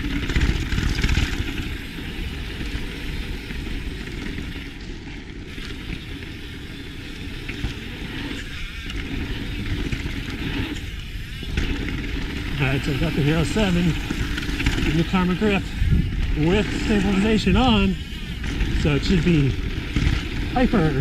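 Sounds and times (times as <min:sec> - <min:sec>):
bike rattling: 0:00.0 - 0:21.0
bike tyres on gravel trail: 0:00.0 - 0:21.0
wind rushing over microphone: 0:09.2 - 0:21.0.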